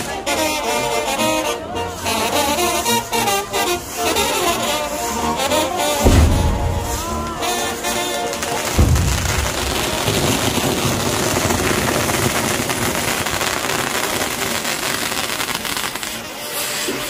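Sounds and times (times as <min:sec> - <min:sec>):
brass band music: 0:00.0 - 0:11.4
fireworks crackling and hissing: 0:00.0 - 0:17.0
loud bang: 0:06.0 - 0:11.3.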